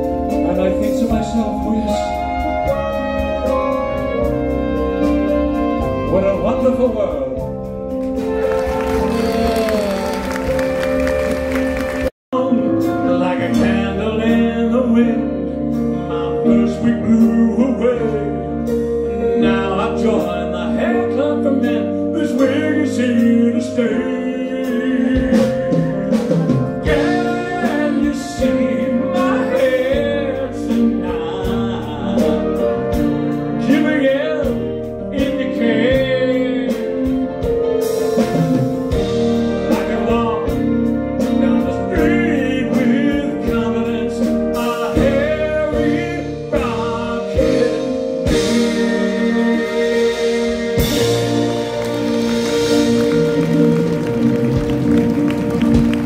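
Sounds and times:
man singing: 0:00.0 - 0:04.2, 0:12.3 - 0:51.8
live band with drums: 0:00.0 - 0:14.5, 0:24.6 - 0:56.0.

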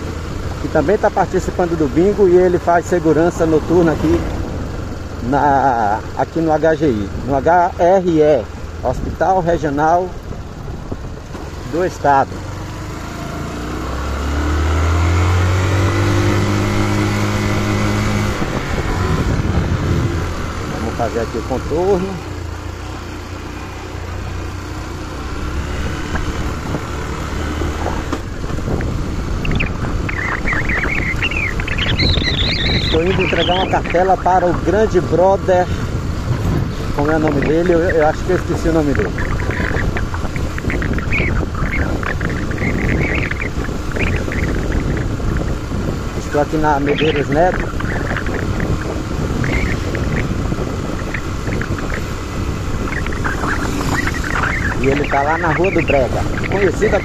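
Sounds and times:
road and wind noise: 0:00.0 - 0:57.0
vehicle engine running: 0:00.0 - 0:57.0
high warbling chirps: 0:29.3 - 0:35.3, 0:37.0 - 0:45.0, 0:46.4 - 0:50.4, 0:51.0 - 0:57.0.

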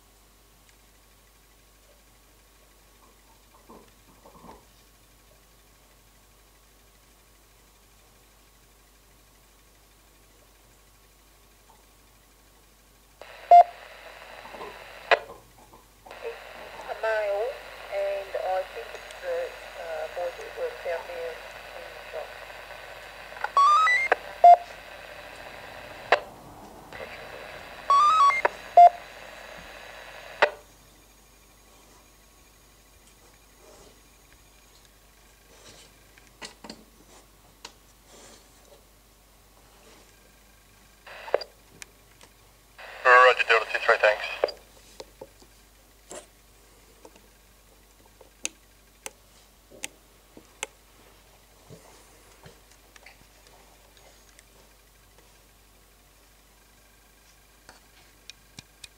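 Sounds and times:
radio hiss: 0:13.2 - 0:15.4, 0:16.1 - 0:32.6, 0:41.0 - 0:41.6, 0:42.8 - 0:44.9
paging tone beeps: 0:13.4 - 0:13.8, 0:23.5 - 0:24.7, 0:27.8 - 0:29.0
short blips: 0:22.0 - 0:26.3, 0:26.9 - 0:30.6
faint hiss: 0:42.8 - 0:44.6.

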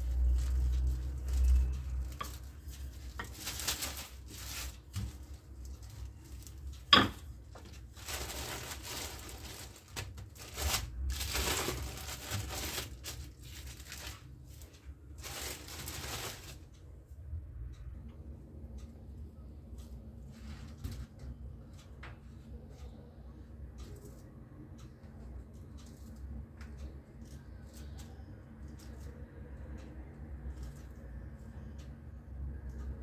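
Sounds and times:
plastic film crinkling: 0:00.0 - 0:16.8.

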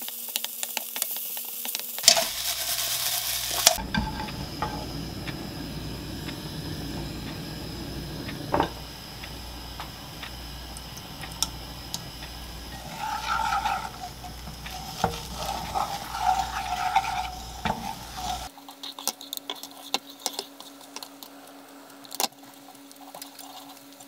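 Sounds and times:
egg sizzling in a pan: 0:00.0 - 0:24.0
chopsticks scraping and tapping pan: 0:02.1 - 0:05.5, 0:08.3 - 0:21.3.

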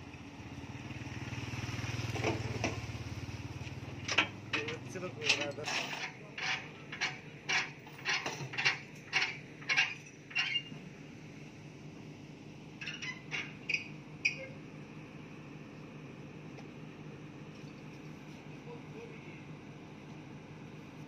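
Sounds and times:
low engine hum: 0:00.0 - 0:09.7
metal-on-metal knocks: 0:04.0 - 0:10.7.

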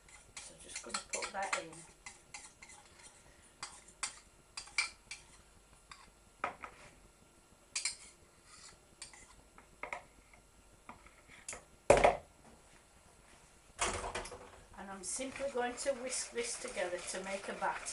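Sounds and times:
utensil clinking against dishes: 0:00.4 - 0:02.5.

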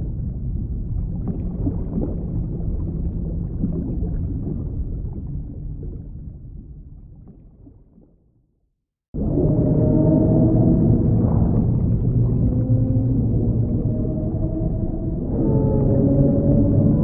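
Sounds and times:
low rumbling ambient drone: 0:09.2 - 0:17.0.

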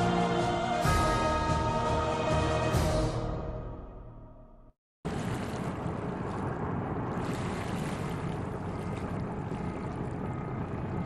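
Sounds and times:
wind: 0:05.0 - 0:11.0
water lapping over rocks: 0:05.1 - 0:11.0.

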